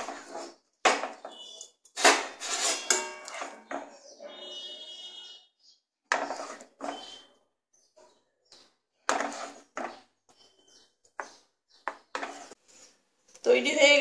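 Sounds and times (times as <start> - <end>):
spatula scraping metal pan: 0.0 - 0.6, 1.2 - 5.2, 6.1 - 7.3, 9.0 - 10.7, 11.9 - 13.0.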